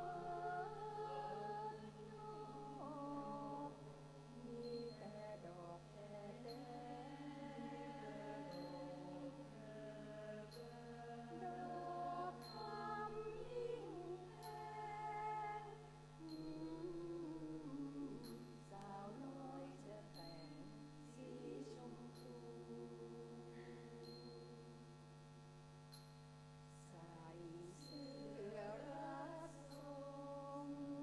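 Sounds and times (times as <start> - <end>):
women's choir singing: 0.0 - 24.7, 26.8 - 31.0
faint high ticks: 25.9 - 26.2.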